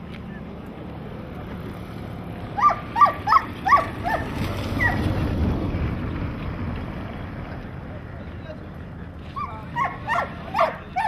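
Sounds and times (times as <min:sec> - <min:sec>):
dog yelping: 0:02.6 - 0:05.1, 0:09.4 - 0:11.0.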